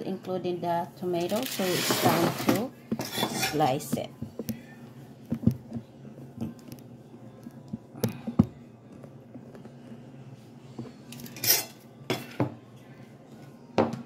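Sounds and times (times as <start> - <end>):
rustling scrape: 1.3 - 3.6.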